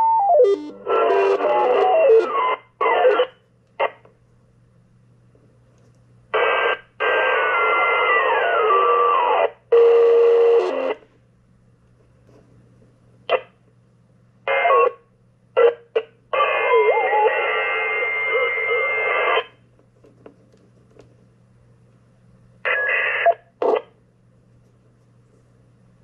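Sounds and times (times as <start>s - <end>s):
garbled radio signals: 0.0s - 4.0s, 6.4s - 11.0s, 14.5s - 15.0s, 15.6s - 19.5s, 22.6s - 24.0s
radio static bursts: 0.0s - 4.0s, 6.3s - 11.0s, 14.5s - 15.0s, 15.6s - 19.6s, 22.7s - 24.0s.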